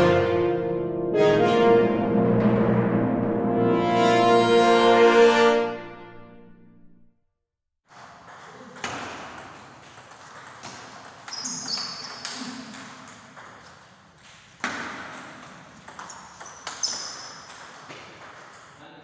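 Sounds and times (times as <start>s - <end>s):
table tennis ball hits: 8.1s - 13.8s, 14.6s - 18.7s.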